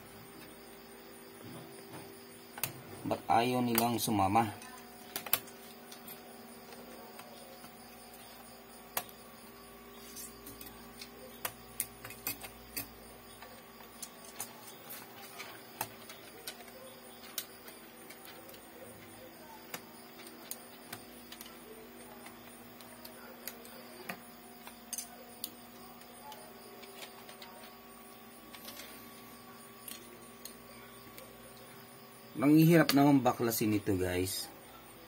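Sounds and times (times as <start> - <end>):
faint hum: 0.0 - 35.0
plastic laptop parts clicking: 4.6 - 8.4, 10.1 - 27.7.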